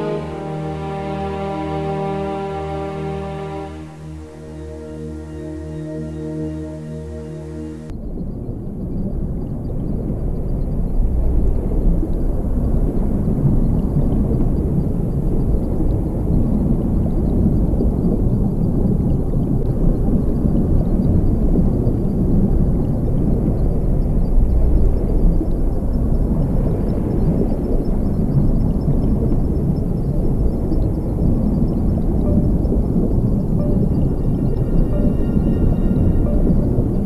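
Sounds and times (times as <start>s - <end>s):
music: 0.0s - 7.9s, 31.7s - 37.0s
low steady rumbling: 0.0s - 37.0s.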